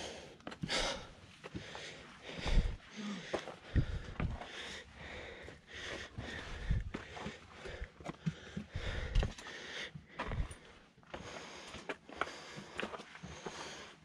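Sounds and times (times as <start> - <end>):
person breathing hard: 0.0 - 14.0.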